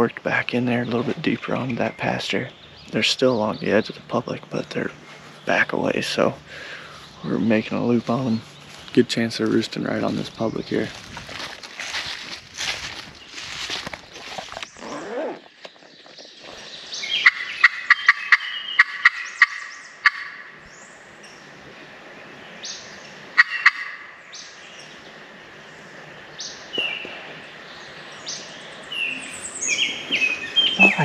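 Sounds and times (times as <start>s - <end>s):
wild turkey gobbling: 17.1s - 20.5s, 23.4s - 24.1s
turkey friction call yelps: 17.2s - 20.5s, 23.4s - 24.1s.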